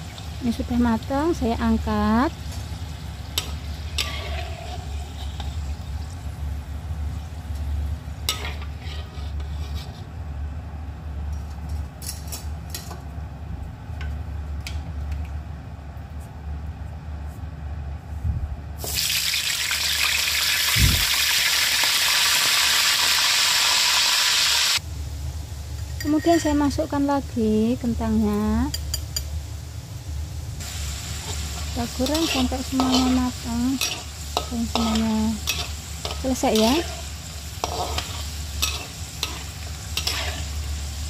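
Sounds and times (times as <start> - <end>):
food sizzling in hot oil: 0.0 - 10.0, 18.8 - 24.8, 25.4 - 41.0
metal spoon clinking on pan: 32.0 - 37.0, 37.6 - 40.4.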